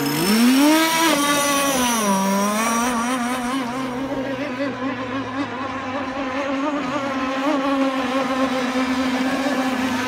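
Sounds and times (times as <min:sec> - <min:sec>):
model speedboat motor whining: 0:00.0 - 0:10.0.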